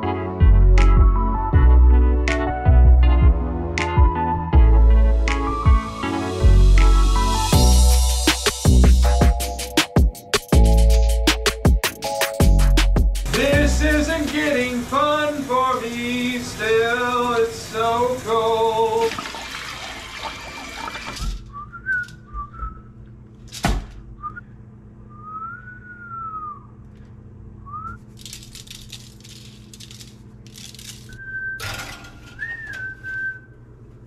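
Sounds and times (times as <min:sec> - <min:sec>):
music with singing voice: 0:00.0 - 0:19.1
person whistling a tune: 0:21.5 - 0:22.9, 0:25.1 - 0:26.7, 0:31.2 - 0:31.6, 0:32.4 - 0:33.5
plastic shaker rattling: 0:28.1 - 0:31.2.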